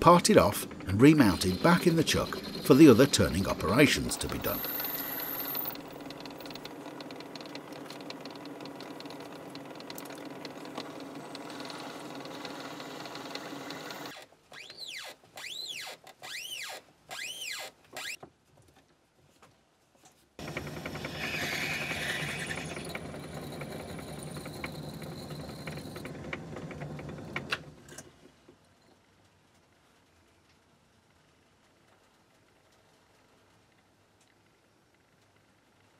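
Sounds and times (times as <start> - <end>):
lathe running: 0.0 - 14.1, 20.4 - 27.7.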